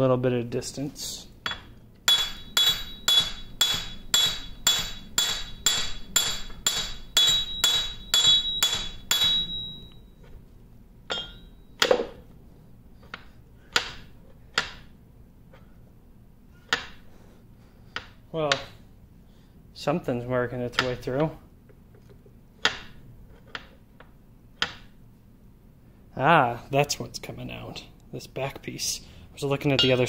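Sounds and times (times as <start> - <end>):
hammer tapping on metal shaft: 1.4 - 10.0, 11.1 - 12.2, 13.1 - 14.9.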